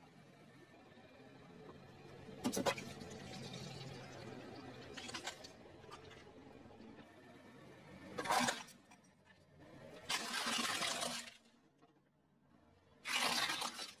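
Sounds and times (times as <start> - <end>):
plastic toy crunching and cracking: 5.0 - 5.6, 8.2 - 8.8, 10.1 - 11.5, 13.0 - 14.0.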